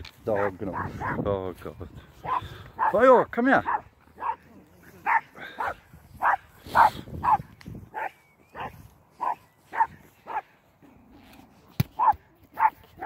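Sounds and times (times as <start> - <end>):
dog barking: 0.4 - 1.2, 2.2 - 3.0, 3.6 - 4.4, 5.0 - 10.4, 12.0 - 12.8.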